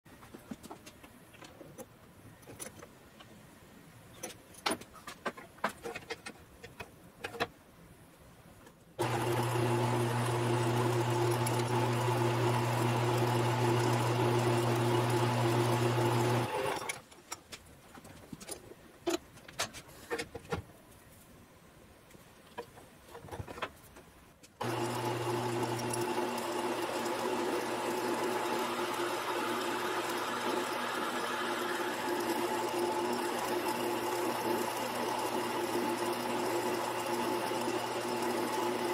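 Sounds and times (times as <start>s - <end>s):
chuck and tools clicking: 4.1s - 7.6s
drill boring into metal part: 9.0s - 16.9s, 24.6s - 38.9s
lathe motor humming: 9.0s - 16.9s, 24.6s - 38.9s.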